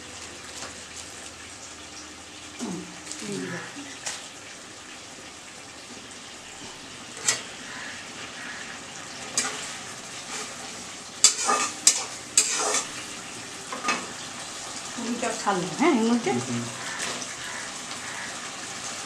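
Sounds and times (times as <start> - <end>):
vegetables frying and sizzling: 0.0 - 19.0
metal spoon clinking against pan: 11.2 - 12.9.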